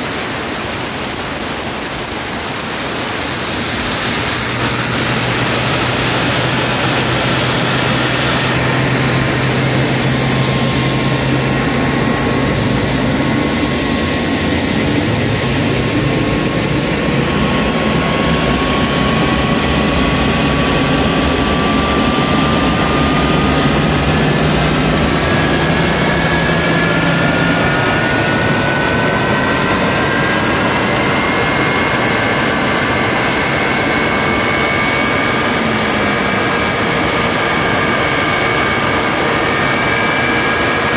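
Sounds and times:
rush of air: 0.0s - 30.9s
auxiliary power unit running: 0.0s - 40.9s
jet engine spooling up: 0.0s - 40.9s
thin whines climbing in pitch: 0.1s - 40.9s.

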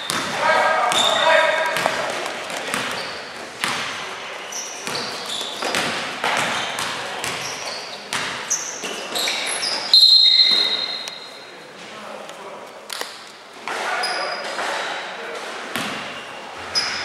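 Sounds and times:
sneaker squeaks on floor: 0.0s - 2.0s, 2.7s - 3.8s, 4.4s - 11.4s, 13.9s - 14.6s, 15.8s - 17.0s
basketball bouncing on court: 0.0s - 4.0s, 4.8s - 8.6s.

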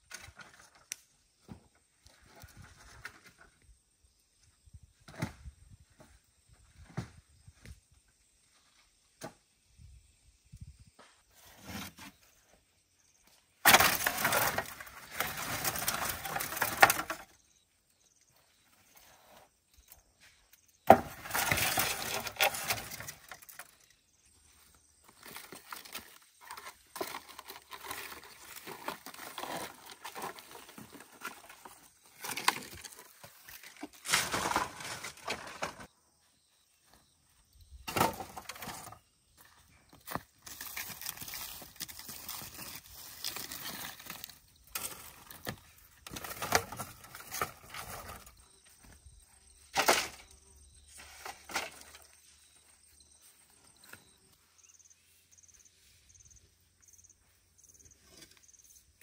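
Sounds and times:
bamboo poles clattering together: 0.0s - 1.6s, 13.6s - 17.4s, 20.8s - 24.0s, 25.1s - 35.9s, 37.8s - 39.0s, 40.0s - 48.4s, 49.6s - 52.2s
log dragged through dry leaves: 40.4s - 48.3s.

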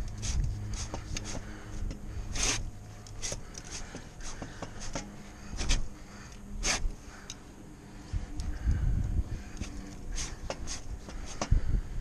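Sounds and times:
gloves scraping bark and rope: 0.0s - 7.0s, 9.6s - 11.6s
steady low hum: 0.0s - 12.0s.

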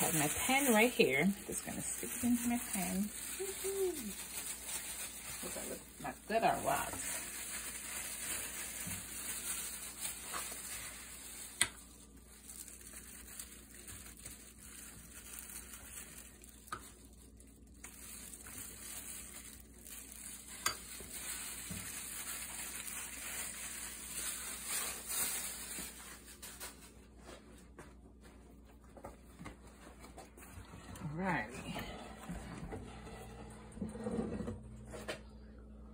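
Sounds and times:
gloved hands squishing marinade: 0.0s - 26.8s
plastic glove crinkling: 0.0s - 32.3s.

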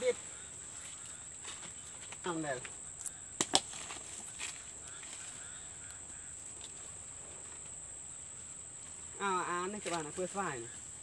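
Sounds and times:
faint bird calls: 0.0s - 7.4s.

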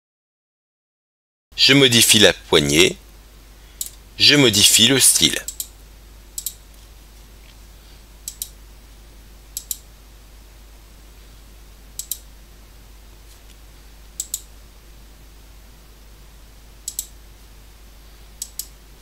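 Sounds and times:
faint hiss and low hum: 1.5s - 19.0s
computer mouse clicks: 6.4s - 6.6s, 8.2s - 8.6s, 9.6s - 9.8s, 12.0s - 12.2s, 14.2s - 14.5s, 16.8s - 17.1s, 18.4s - 18.8s.

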